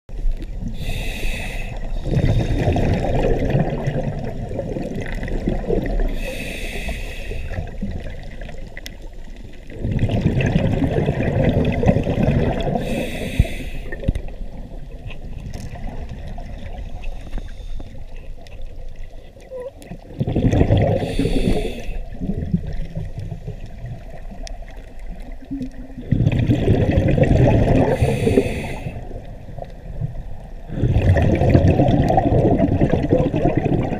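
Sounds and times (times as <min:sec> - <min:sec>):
regulator hissing inhales: 0:00.8 - 0:02.7, 0:06.1 - 0:07.6, 0:12.8 - 0:14.1, 0:21.0 - 0:22.1, 0:27.9 - 0:29.0
exhaled bubbles rushing: 0:01.8 - 0:06.4, 0:07.4 - 0:17.3, 0:19.7 - 0:33.9.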